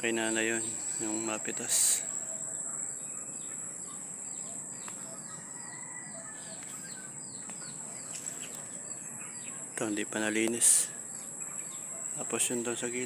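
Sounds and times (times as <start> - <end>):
bird chirping: 0.0 - 13.0
high-pitched insect drone: 0.0 - 13.0.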